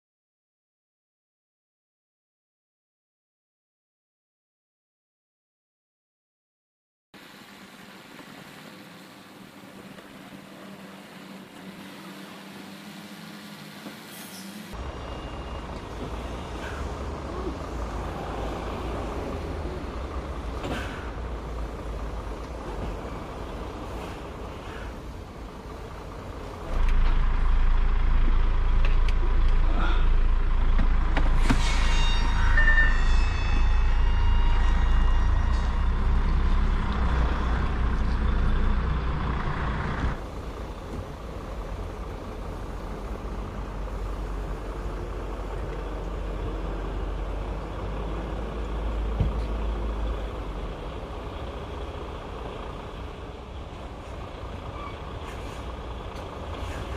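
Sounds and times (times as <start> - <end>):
diesel truck engine running: 14.7 - 31.7, 32.6 - 56.9.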